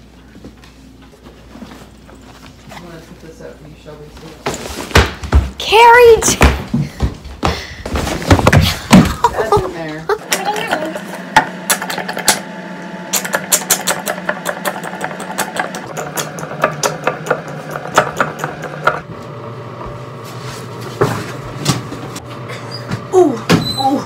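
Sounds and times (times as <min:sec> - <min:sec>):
motor humming: 0:10.1 - 0:24.0.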